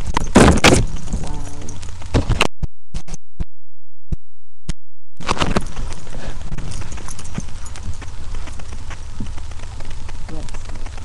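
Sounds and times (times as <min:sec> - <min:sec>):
rustling and thumps: 0:00.0 - 0:02.5, 0:05.2 - 0:11.0.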